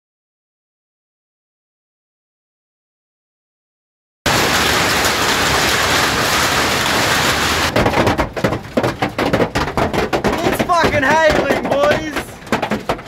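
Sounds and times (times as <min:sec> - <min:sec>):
hail pounding on truck roof: 0:04.3 - 0:13.0.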